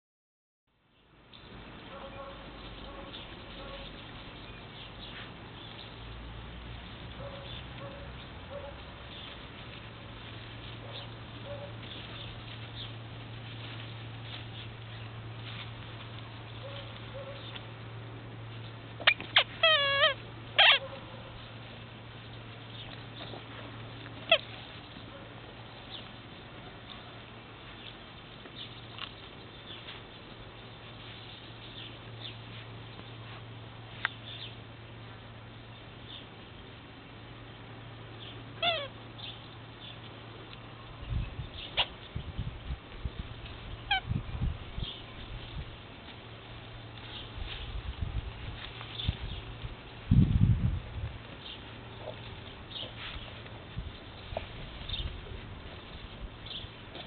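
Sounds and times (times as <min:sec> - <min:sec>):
puppy whimpering: 0:19.0 - 0:20.9
puppies yelping: 0:19.0 - 0:21.5, 0:24.2 - 0:25.2, 0:38.6 - 0:39.0.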